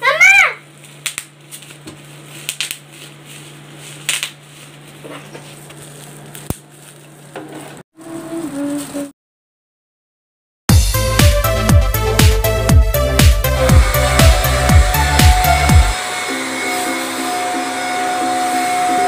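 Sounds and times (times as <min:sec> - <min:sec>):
bubble wrap crinkling and snapping: 0:00.7 - 0:07.8
steady low hum: 0:12.8 - 0:16.1.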